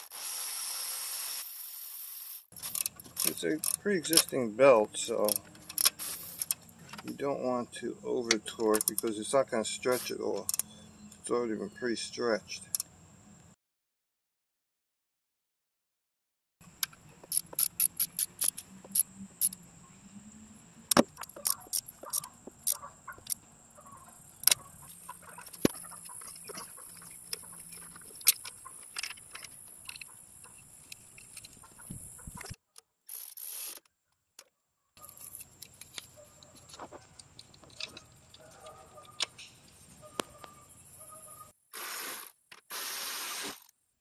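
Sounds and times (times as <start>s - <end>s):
ratchet wrench clicking: 2.6s - 4.3s, 5.2s - 6.6s, 16.8s - 19.6s.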